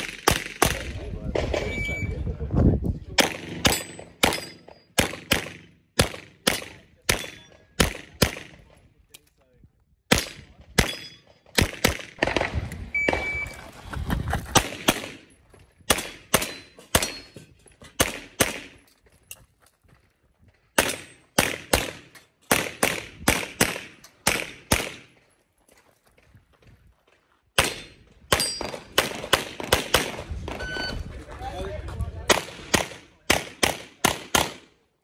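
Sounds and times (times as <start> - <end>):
pistol shots with echo: 0.0 - 1.8, 3.2 - 8.6, 10.1 - 13.3, 14.6 - 15.3, 15.9 - 17.3, 17.9 - 18.8, 20.8 - 25.1, 27.6 - 30.7, 32.3 - 34.8.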